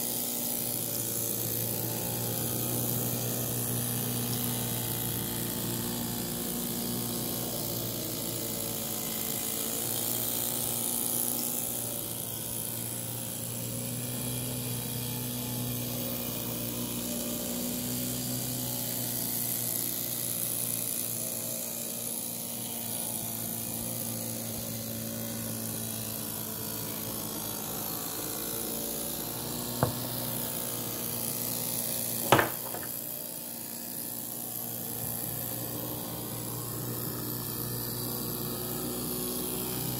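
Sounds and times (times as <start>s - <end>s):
sharp knocks: 29.8s - 30.2s, 32.2s - 33.0s.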